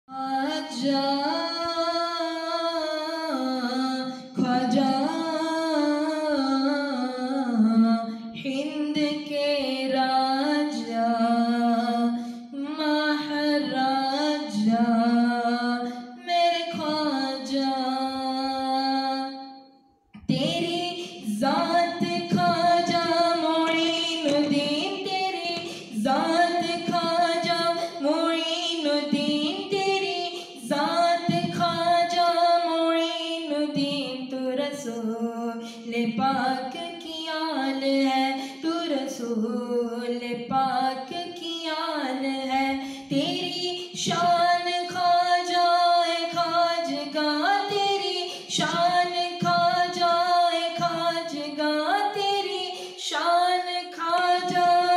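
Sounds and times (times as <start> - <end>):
breaths between phrases: 42.8 - 43.1.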